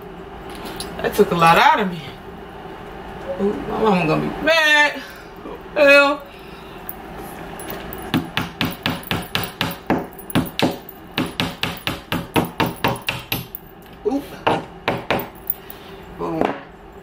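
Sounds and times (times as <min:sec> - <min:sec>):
hammer striking nail: 0:08.1 - 0:13.6, 0:14.5 - 0:15.4.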